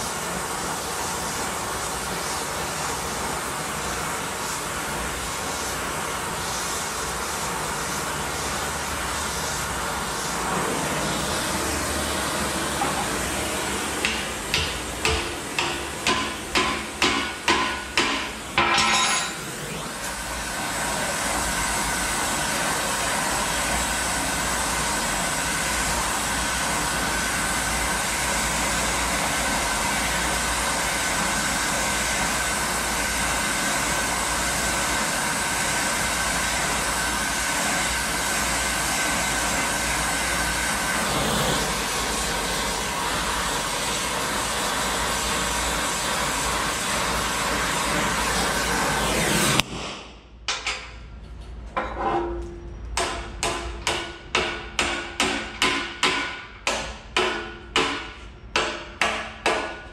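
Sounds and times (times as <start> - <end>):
torch hissing: 0.0 - 18.6, 19.4 - 49.7
hammer striking steel: 14.0 - 19.5, 51.8 - 59.9.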